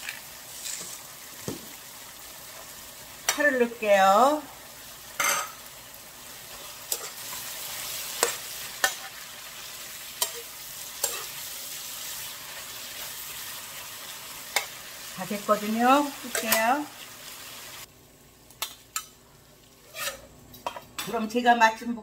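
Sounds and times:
vegetables sizzling in a wok: 0.0 - 22.0
metal spoon scraping a pan: 6.5 - 9.2, 10.2 - 11.5, 19.8 - 21.2.

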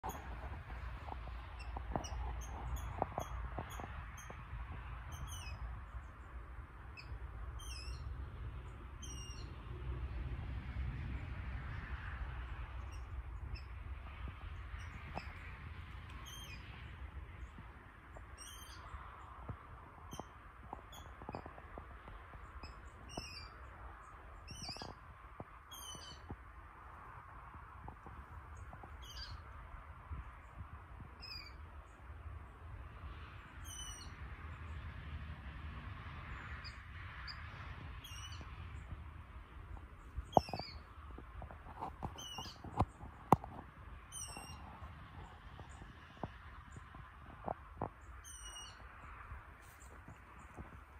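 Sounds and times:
bird calling high-pitched: 44.1 - 44.6, 48.2 - 48.8.

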